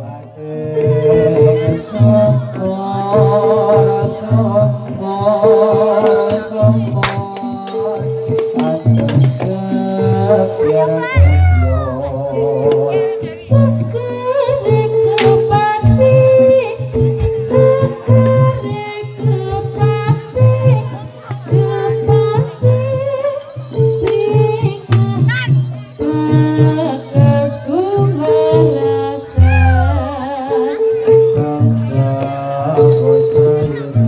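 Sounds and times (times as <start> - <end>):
person singing: 0.0 - 34.0
low drum beat: 0.8 - 14.1.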